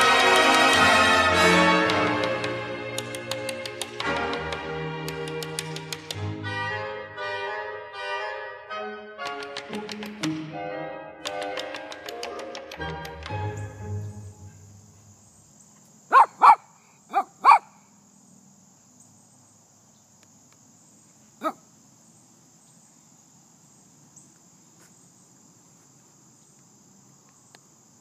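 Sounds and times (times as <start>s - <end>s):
insects chirring: 0.0s - 6.9s, 11.3s - 28.0s
music: 0.0s - 14.8s
dog barking: 16.1s - 17.8s, 21.4s - 21.6s.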